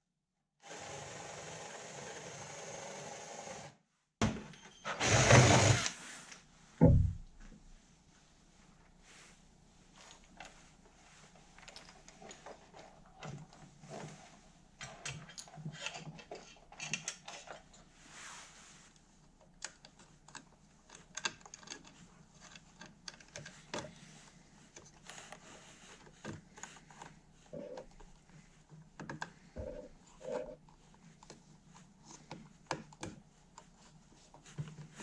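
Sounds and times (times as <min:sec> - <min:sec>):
clicks and rustles of wires: 0:09.9 - 0:18.0, 0:18.9 - 0:35.0.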